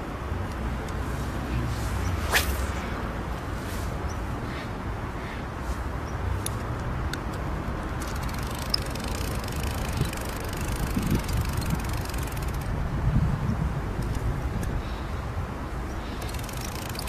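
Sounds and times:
fishing reel clicking: 8.0s - 12.8s, 16.0s - 17.0s.

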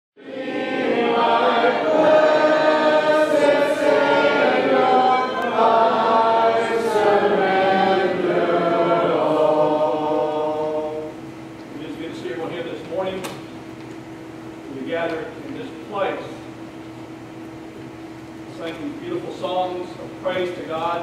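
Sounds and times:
congregation singing a hymn: 0.2s - 12.4s.

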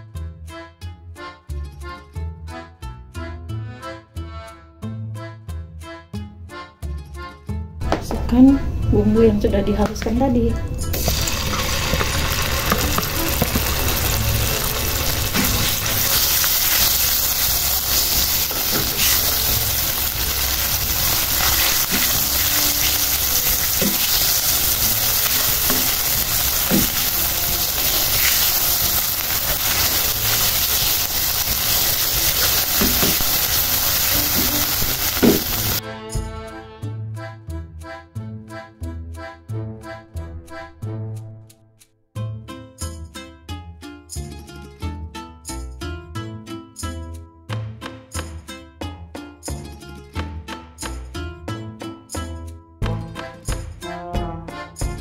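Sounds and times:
paste sizzling in oil: 11.0s - 35.8s.

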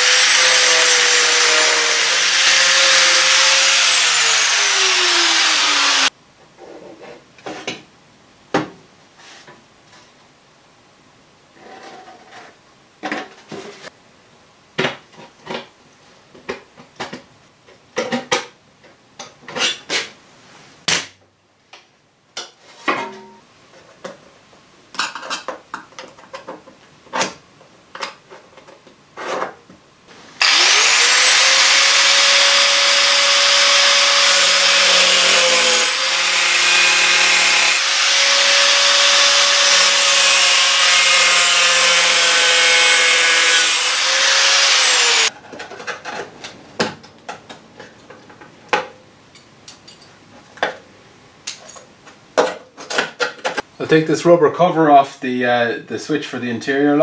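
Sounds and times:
angle grinder cutting sheet steel: 0.0s - 6.1s, 30.4s - 45.3s.

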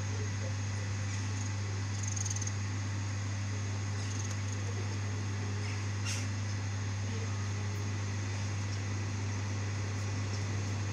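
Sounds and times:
electric train low hum: 6.5s - 10.9s.

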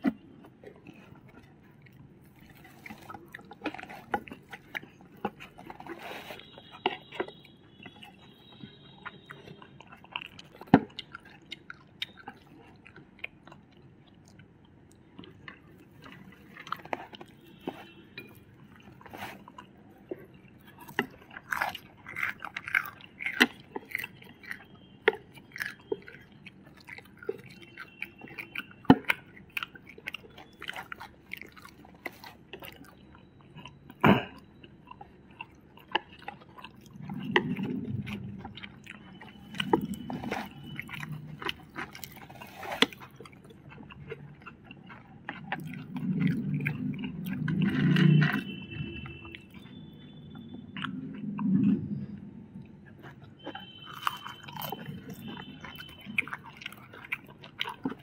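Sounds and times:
people chewing crunchy food: 0.0s - 58.0s.

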